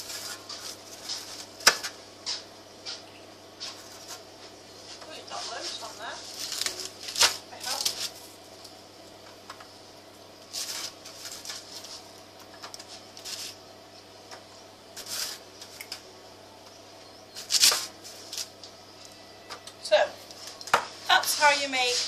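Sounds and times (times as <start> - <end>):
steady low hum: 0.0 - 22.0
biscuits scraping on metal tray: 15.0 - 15.8.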